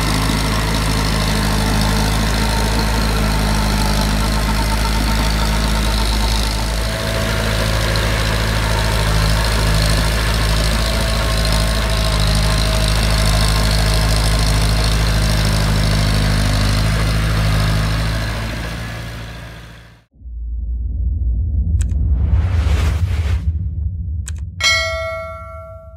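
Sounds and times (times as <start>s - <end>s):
tractor diesel engine running: 0.0s - 20.1s.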